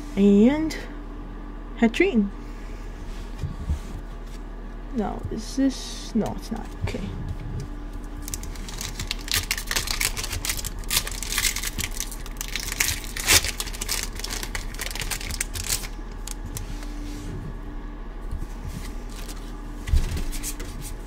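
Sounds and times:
foil wrapper crinkling and tearing: 7.9s - 17.0s, 18.9s - 19.5s.

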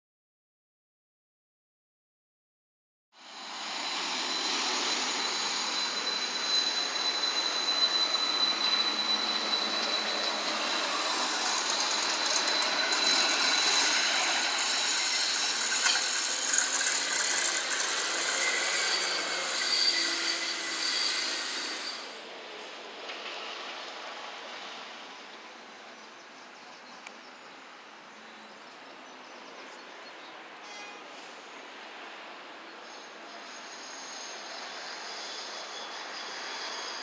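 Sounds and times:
tram high whine: 3.2s - 25.3s, 33.0s - 37.0s
tram wheels on rails: 3.4s - 25.6s, 33.1s - 37.0s.

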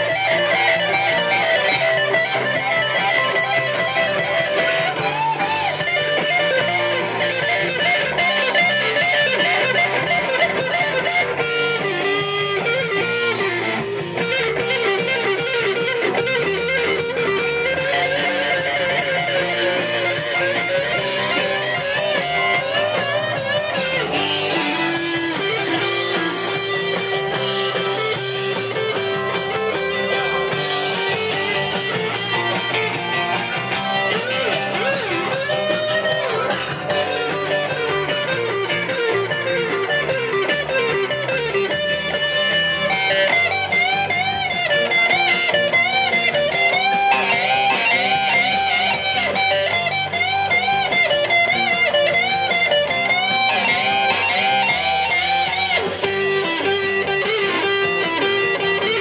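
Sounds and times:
electric guitar lead: 0.0s - 59.0s.

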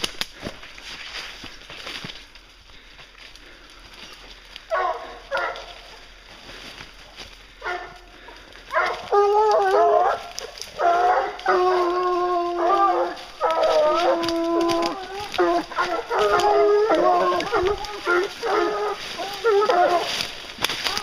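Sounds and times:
dogs yelping: 4.6s - 6.2s, 7.5s - 21.0s
dogs howling: 4.7s - 6.1s, 7.5s - 21.0s.

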